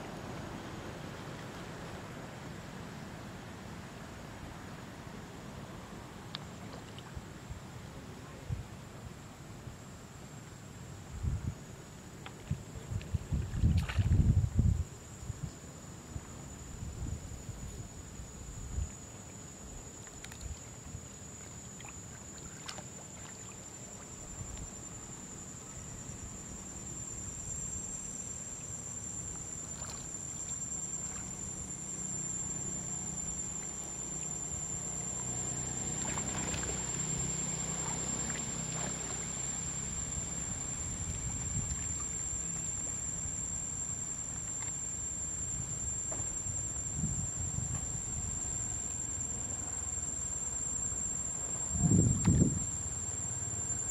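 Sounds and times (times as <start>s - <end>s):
faint splashes: 12.2s - 14.2s, 20.0s - 24.8s, 29.6s - 31.4s, 35.8s - 39.4s
water sloshing and lapping: 12.2s - 14.3s, 20.0s - 24.8s, 29.3s - 31.5s, 35.8s - 39.4s
high-pitched insect drone: 12.6s - 53.9s.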